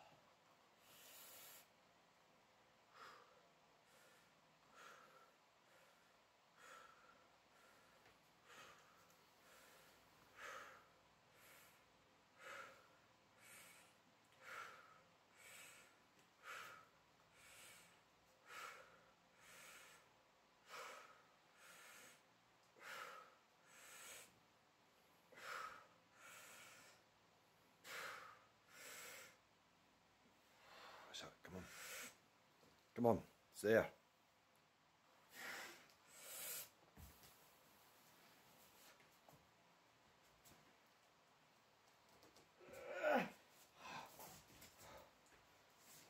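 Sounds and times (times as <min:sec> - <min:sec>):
man breathing hard: 0:02.9 - 0:24.4, 0:25.3 - 0:27.1, 0:27.8 - 0:29.4, 0:42.6 - 0:46.0.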